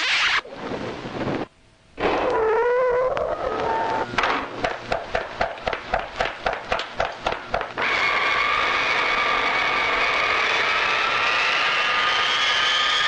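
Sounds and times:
whine rising in pitch: 0:01.9 - 0:04.3, 0:07.4 - 0:13.0.

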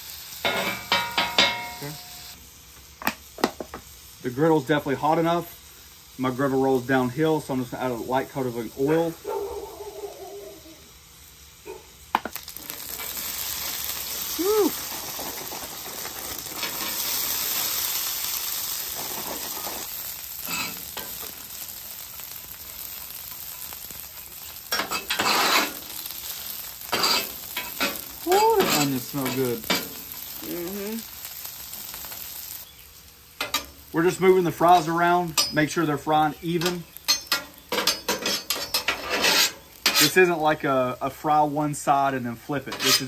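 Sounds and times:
fries sizzling in oil: 0:00.0 - 0:43.0
metal spatula scraping steel: 0:20.4 - 0:21.2, 0:24.7 - 0:25.8, 0:26.9 - 0:28.0, 0:28.6 - 0:30.0, 0:36.6 - 0:40.3, 0:42.7 - 0:43.0.

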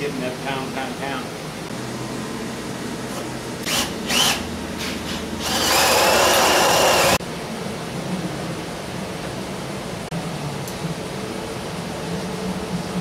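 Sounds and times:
cordless drill whining: 0:03.6 - 0:04.4, 0:05.4 - 0:07.2.

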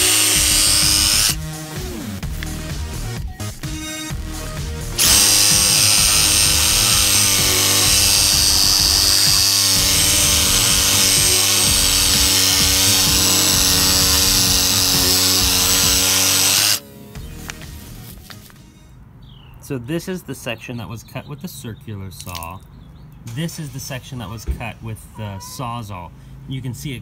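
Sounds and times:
reciprocating saw cutting wood: 0:00.0 - 0:01.4, 0:04.9 - 0:16.8.

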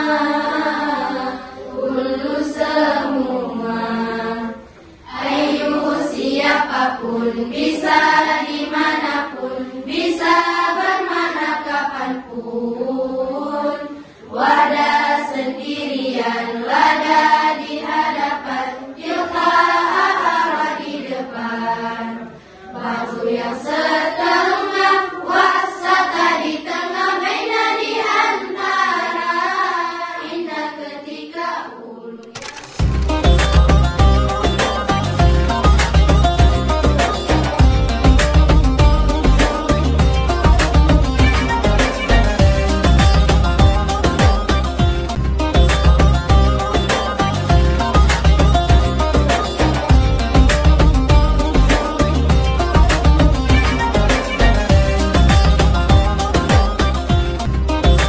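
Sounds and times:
girls chanting in unison: 0:00.0 - 0:32.2.

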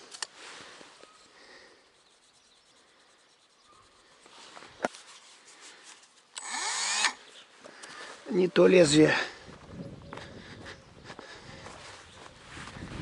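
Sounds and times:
handling rustle: 0:00.0 - 0:06.4.

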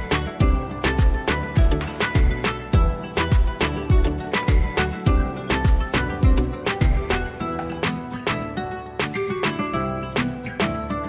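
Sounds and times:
deep kick drum: 0:00.0 - 0:07.2
background music with beat: 0:00.0 - 0:11.0.

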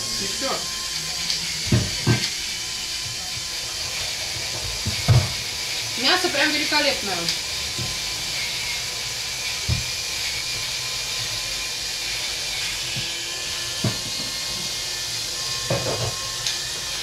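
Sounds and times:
stove hissing: 0:00.0 - 0:17.0.

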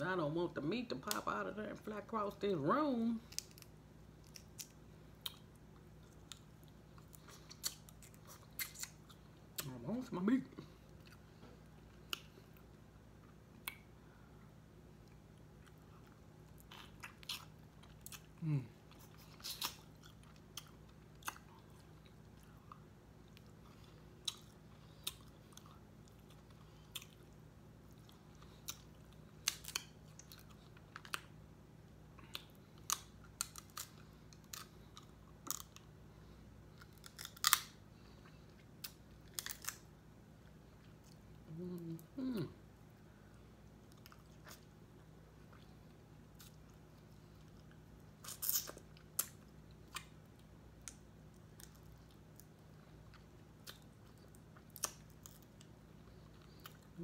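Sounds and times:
chewing and mouth sounds: 0:03.2 - 0:09.8, 0:15.0 - 0:31.4, 0:43.3 - 0:57.0
person humming: 0:18.4 - 0:18.8, 0:41.5 - 0:42.6
crab shells cracking: 0:37.0 - 0:37.8.

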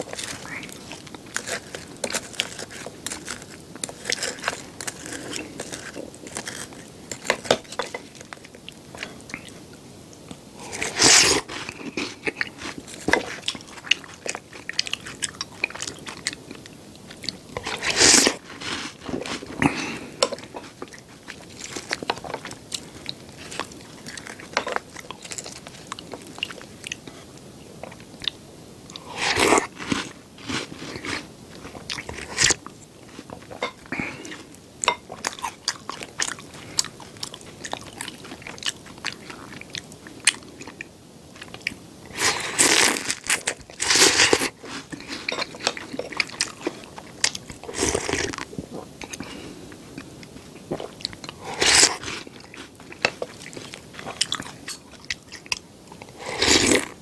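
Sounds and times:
chewing with wet crunches: 0:10.7 - 0:57.0
slurping: 0:17.3 - 0:20.7, 0:56.0 - 0:57.0.

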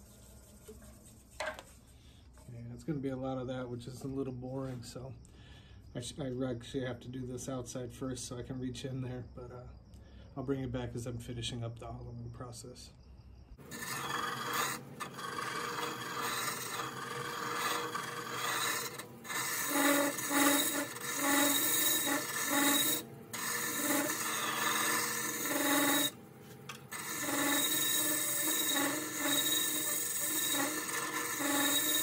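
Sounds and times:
lathe tool scraping wood: 0:13.6 - 0:32.0.

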